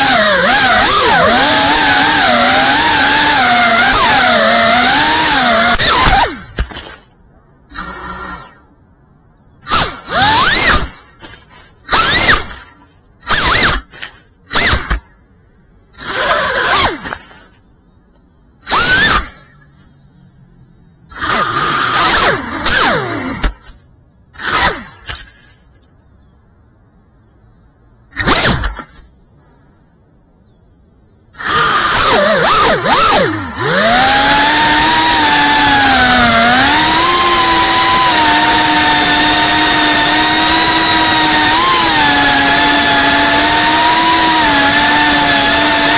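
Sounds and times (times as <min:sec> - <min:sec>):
drone motors revving: 0:00.0 - 0:07.1, 0:07.7 - 0:08.8, 0:09.6 - 0:15.1, 0:15.9 - 0:17.6, 0:18.6 - 0:20.2, 0:21.0 - 0:25.8, 0:31.3 - 0:45.9.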